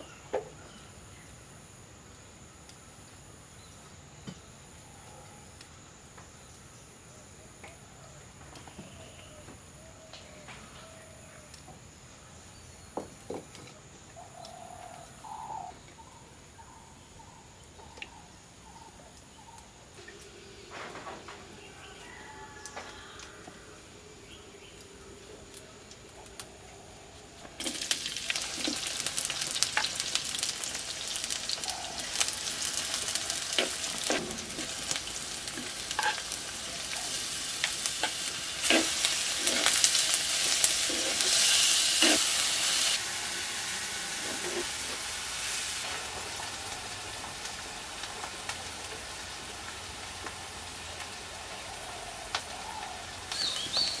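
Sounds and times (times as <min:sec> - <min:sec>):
mushrooms sizzling in a pan: 0:25.7 - 0:54.0.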